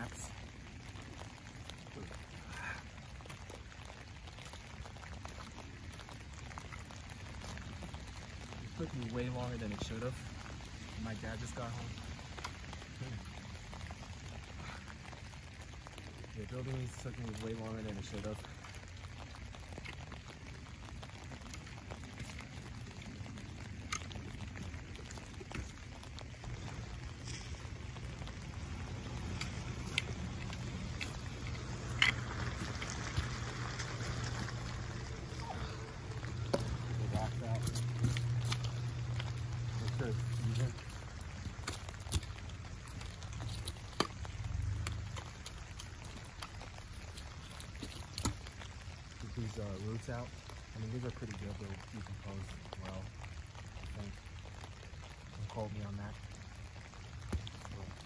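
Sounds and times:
light rain: 0.0s - 58.0s.

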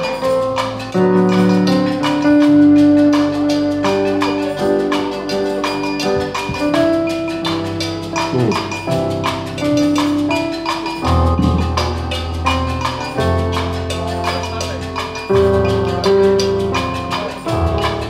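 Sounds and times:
electronic keyboard playing chords: 0.0s - 18.0s
percussion clicks beat: 5.1s - 18.0s.

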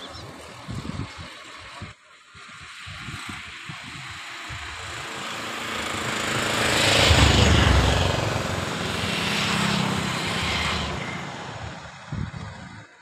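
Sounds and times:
motor vehicle passing: 3.9s - 12.9s.

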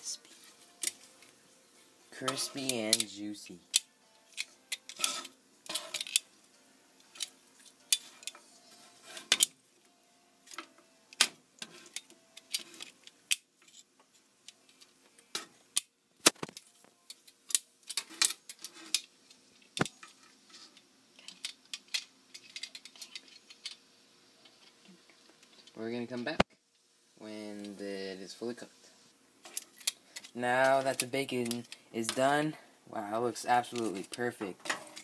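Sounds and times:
metal tongs clicking on griddle: 2.2s - 6.3s.

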